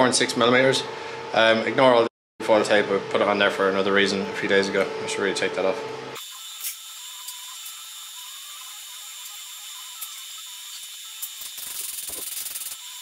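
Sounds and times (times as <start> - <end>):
welding arc hissing: 6.2 - 13.0.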